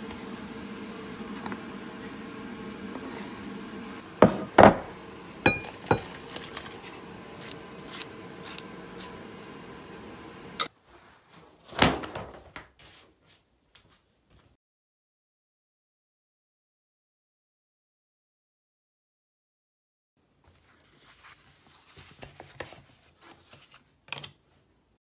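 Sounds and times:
fan hum: 0.0 - 10.7.

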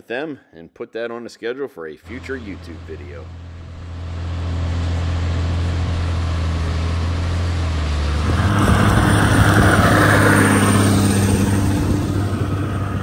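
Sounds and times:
tracked tractor diesel engine: 2.0 - 13.0
rushing noise: 2.1 - 13.0.

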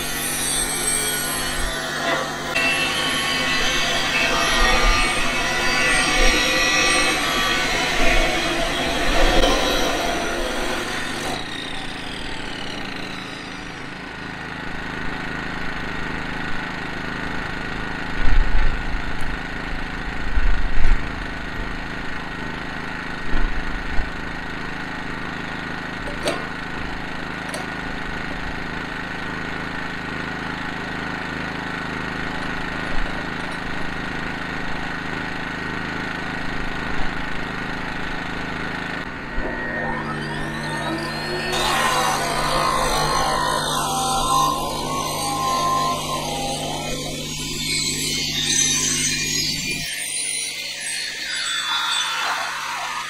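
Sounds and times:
saw disc spinning down: 0.0 - 15.8, 37.2 - 53.0
generator running: 0.0 - 18.1, 34.2 - 49.8.

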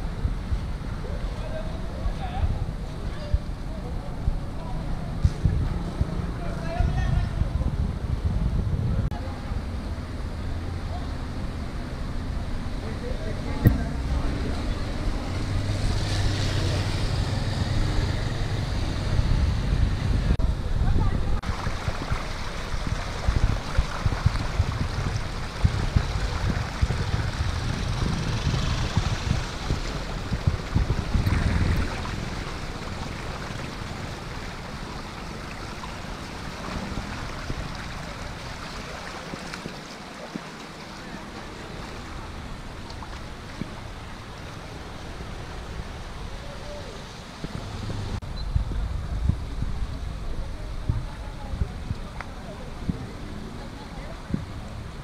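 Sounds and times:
low buffeting rumble: 0.0 - 16.0, 17.0 - 39.2, 41.0 - 55.0
steady rushing noise: 0.0 - 55.0
water swishing around tyres: 21.4 - 55.0
motorcycle engine humming: 24.3 - 38.4.

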